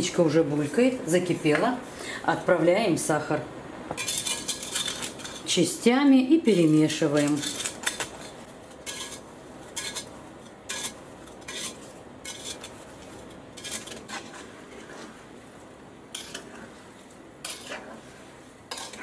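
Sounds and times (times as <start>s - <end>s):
metal spoon scraping pot: 4.0s - 5.5s, 6.5s - 10.1s, 10.7s - 12.8s, 13.5s - 15.1s, 16.1s - 16.7s, 17.4s - 18.1s, 18.7s - 19.0s.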